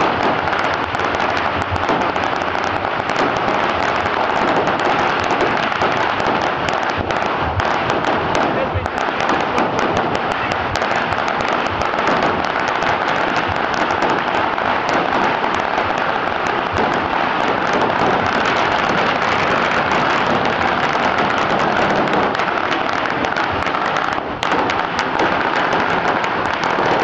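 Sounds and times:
firecracker string crackling: 0.0s - 27.0s.

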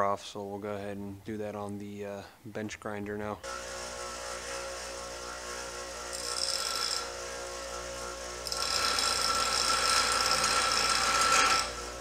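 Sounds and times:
bench grinder grinding metal: 3.4s - 12.0s.

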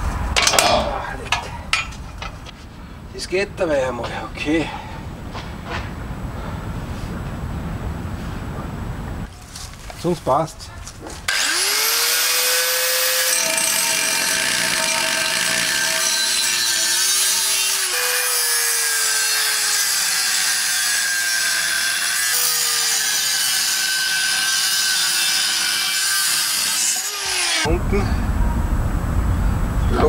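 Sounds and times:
angle grinder cutting steel: 11.3s - 27.7s.

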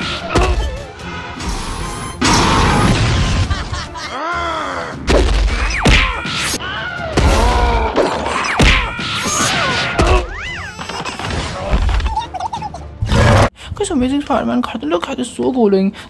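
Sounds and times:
background music: 0.0s - 15.8s
cartoon crashes and thuds: 2.2s - 3.7s.

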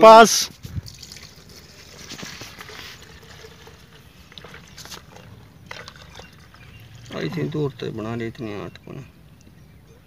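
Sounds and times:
liquid pouring into plastic jug: 0.6s - 8.0s.

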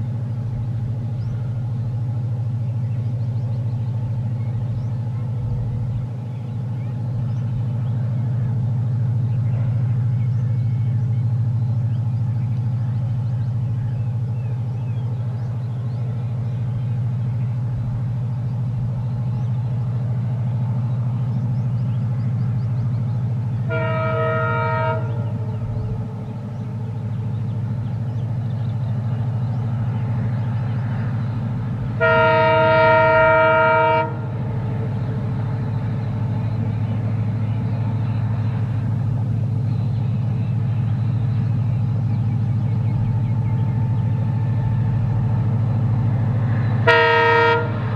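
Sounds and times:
diesel locomotive engine running: 0.0s - 47.9s
train air horn blasts: 23.6s - 25.5s, 32.0s - 35.0s, 46.8s - 47.9s.

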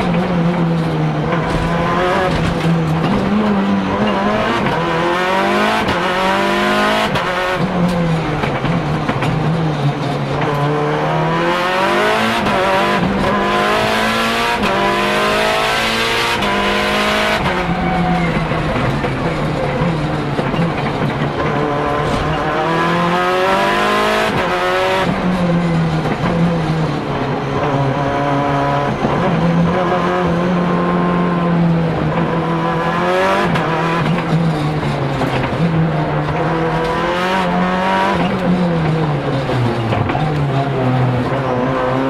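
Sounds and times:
turbocharged car engine revving: 0.0s - 42.0s.

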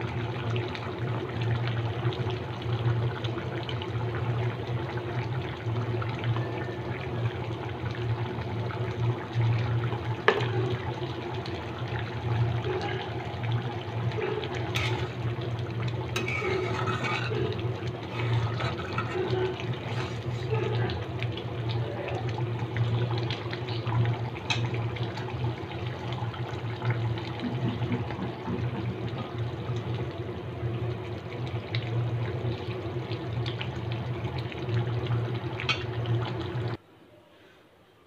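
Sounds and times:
curry bubbling in wok: 0.0s - 36.8s
metal spatula scraping pan: 14.6s - 15.3s, 16.1s - 20.5s.

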